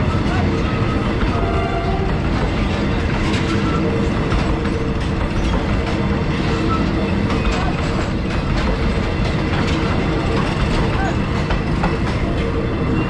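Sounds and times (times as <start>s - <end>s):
train wheels rumbling on rails: 0.0s - 13.0s
clicks and clatter: 7.4s - 12.2s.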